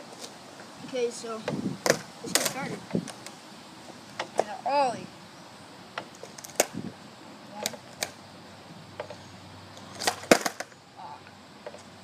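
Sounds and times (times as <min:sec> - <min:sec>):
skateboard clattering on pavement: 0:01.8 - 0:03.2, 0:06.0 - 0:06.8, 0:09.8 - 0:10.8.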